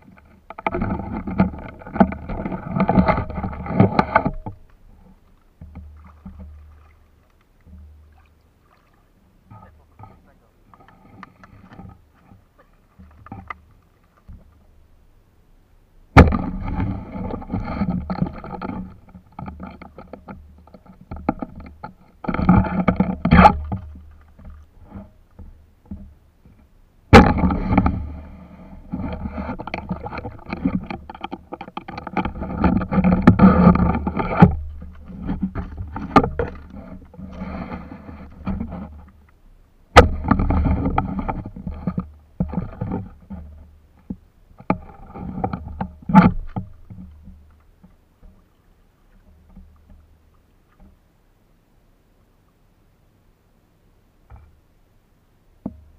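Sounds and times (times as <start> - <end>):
seawater sloshing and churning: 0.0 - 14.8, 16.2 - 26.7, 27.3 - 39.4.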